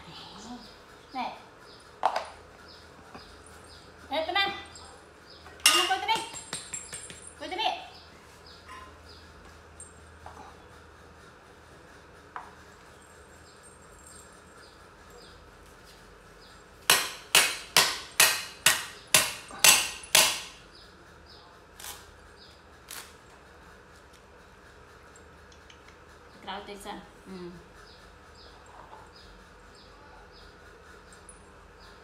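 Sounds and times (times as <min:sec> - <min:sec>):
cleaver chopping on wooden board: 0:16.9 - 0:20.5.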